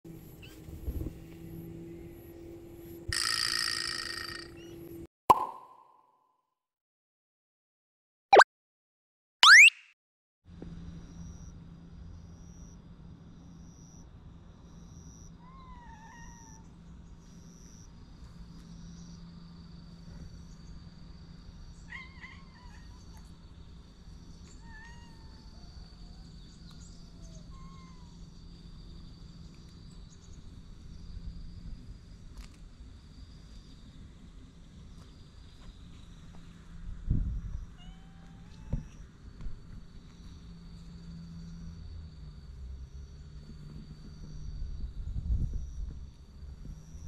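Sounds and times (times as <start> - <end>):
cats meowing: 15.4 - 16.6, 24.5 - 25.6, 27.1 - 28.2, 37.7 - 39.0.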